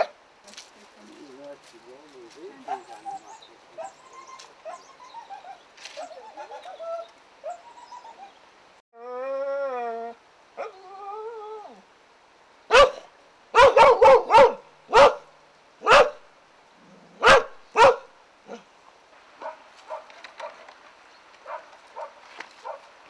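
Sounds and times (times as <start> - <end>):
dog barking: 2.6 - 4.0, 12.7 - 16.2, 17.2 - 18.6, 19.4 - 20.6, 21.4 - 22.9.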